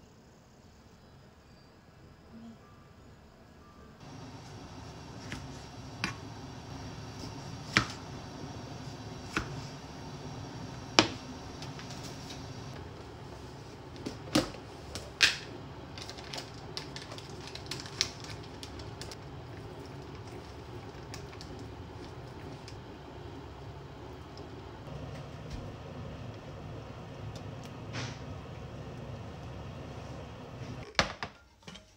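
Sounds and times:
low background hum: 0.1 - 31.9.

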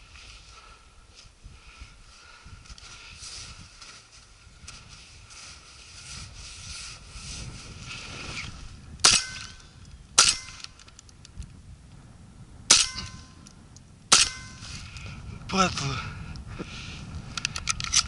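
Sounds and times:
shotgun shots: 10.2 - 10.7, 14.1 - 14.6.

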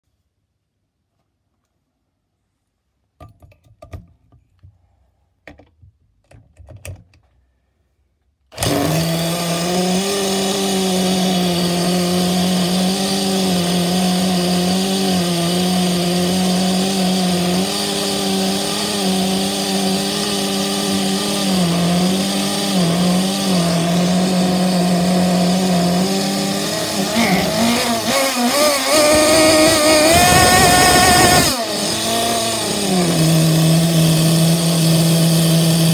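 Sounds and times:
cordless drill whine: 8.5 - 35.9
small engine running unevenly: 8.6 - 35.9.

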